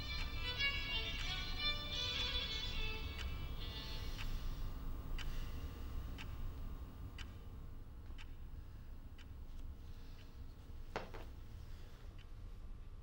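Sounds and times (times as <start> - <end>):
clock ticking: 0.0 - 4.4, 5.0 - 9.4
low room hum: 0.0 - 13.0.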